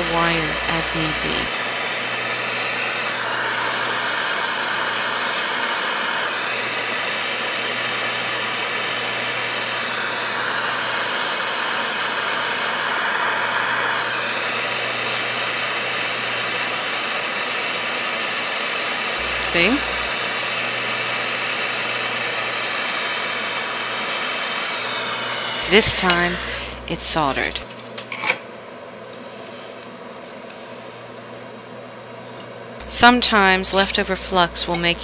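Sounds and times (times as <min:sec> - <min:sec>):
soldering torch flame hissing: 0:00.0 - 0:27.6, 0:29.0 - 0:32.1.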